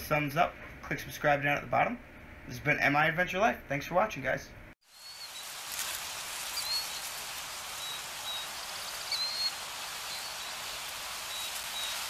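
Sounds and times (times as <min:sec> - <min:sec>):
steady rushing hiss: 0:04.8 - 0:12.0
high bird chirps: 0:04.9 - 0:12.0.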